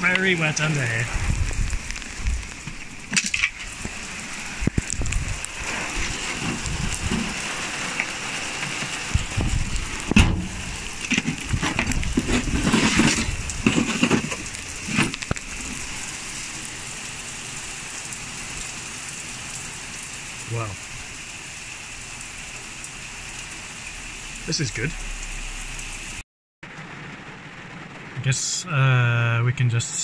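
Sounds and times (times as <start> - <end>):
heavy rain on car and paving: 0.0 - 30.0
close knocks and rustles: 5.7 - 15.5.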